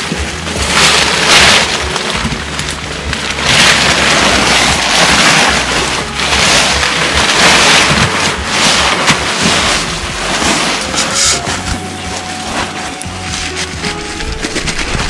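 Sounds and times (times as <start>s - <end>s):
plastic tarp rustling and crackling: 0.0s - 15.0s.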